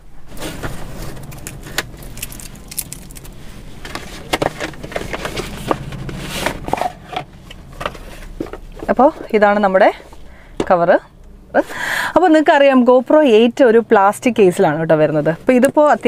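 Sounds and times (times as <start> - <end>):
low hum: 0.0 - 15.7
packaging being torn open: 1.0 - 3.4.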